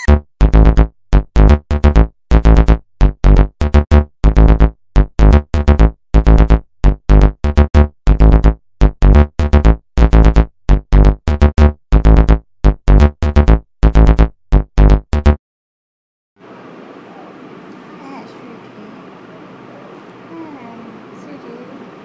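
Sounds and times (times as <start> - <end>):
upbeat electronic music: 0.0 - 15.4.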